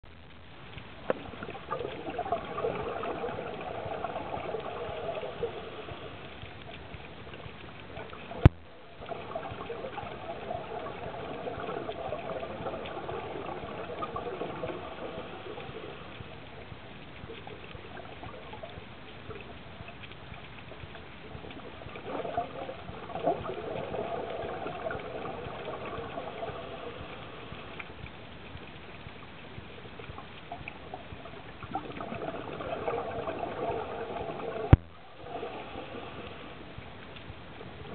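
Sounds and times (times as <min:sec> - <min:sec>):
underwater breath bubbling: 0:01.1 - 0:06.5, 0:08.0 - 0:16.4, 0:21.6 - 0:27.9, 0:31.0 - 0:36.8.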